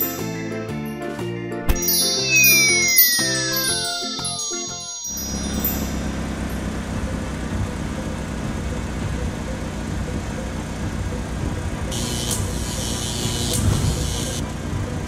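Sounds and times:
cartoon car engine rumble: 5.4 - 12.0.

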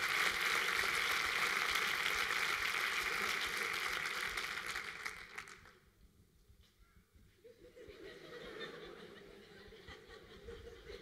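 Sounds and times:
audience applause: 0.0 - 5.8.

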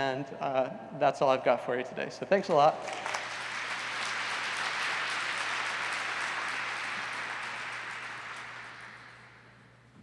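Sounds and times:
audience applauding: 2.8 - 9.5.

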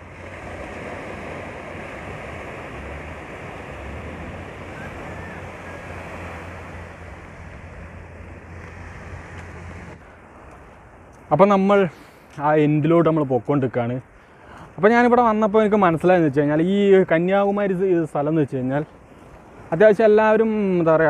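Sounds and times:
sea waves washing onto sand: 0.0 - 11.0
wind rumbling on microphone: 0.0 - 11.4.

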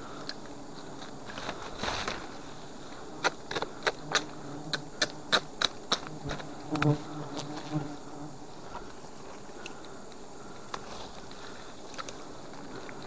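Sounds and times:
honey bees buzzing: 0.0 - 13.0
sharp clicks and snaps: 3.2 - 6.2.

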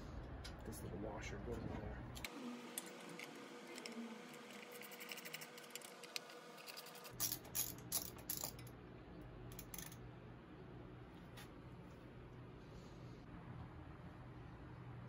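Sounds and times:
tools and small parts rattling: 2.8 - 8.7, 9.5 - 10.0
sharp metal clinks and knocks: 6.9 - 8.7, 9.5 - 10.0.

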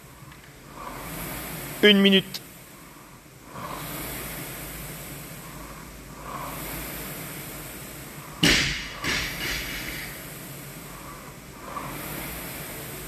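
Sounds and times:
rowing machine flywheel whooshing: 0.0 - 13.0
loud bang: 8.4 - 10.0.

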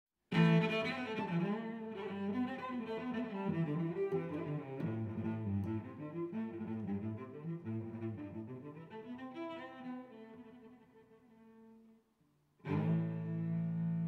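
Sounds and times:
low bowed strings melody: 0.3 - 10.2, 12.6 - 14.0.

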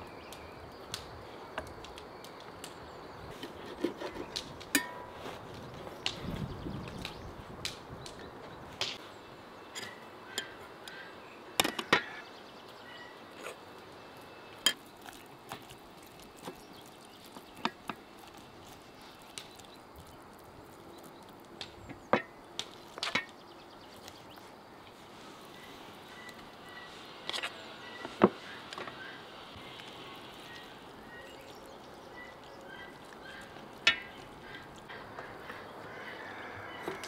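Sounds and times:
faint bird chirps: 25.5 - 37.0.

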